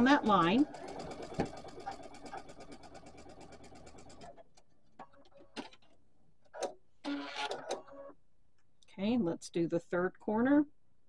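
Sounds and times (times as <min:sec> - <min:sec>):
sewing machine stitching: 0:00.0 - 0:08.1.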